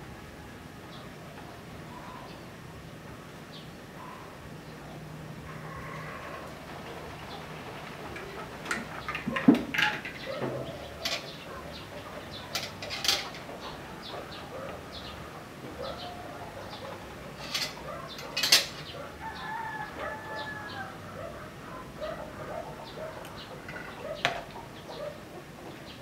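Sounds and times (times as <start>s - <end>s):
birds calling: 0.9s - 26.0s
cutlery clinking on a plate: 17.4s - 18.8s.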